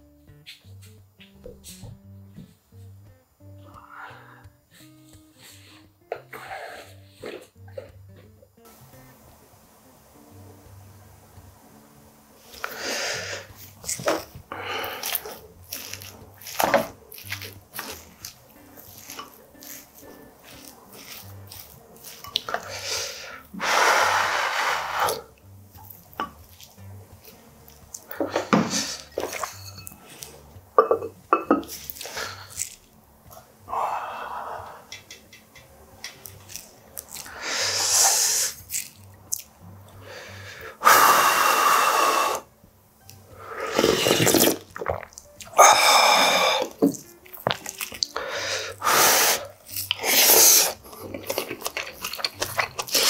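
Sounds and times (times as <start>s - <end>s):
eating from wooden spoon: 13.4s - 22.9s, 25.8s - 32.8s, 43.6s - 48.2s, 49.6s - 53.0s.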